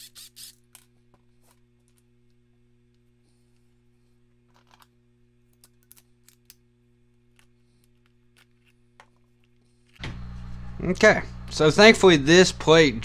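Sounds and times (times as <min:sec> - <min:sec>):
low steady hum: 0:00.1 - 0:13.0
small metal parts clicking: 0:04.5 - 0:04.9, 0:05.5 - 0:06.6.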